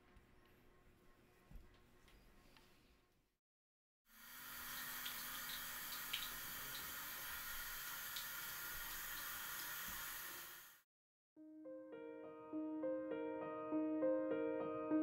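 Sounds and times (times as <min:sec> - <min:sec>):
tap running into basin: 0:04.7 - 0:10.4.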